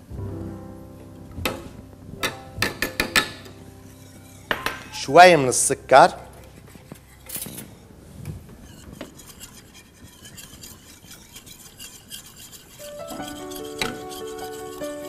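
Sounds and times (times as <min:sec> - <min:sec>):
background music with held notes: 0:00.0 - 0:08.2, 0:12.8 - 0:15.0
utensil scraping metal saucepan: 0:02.2 - 0:05.7, 0:06.4 - 0:15.0.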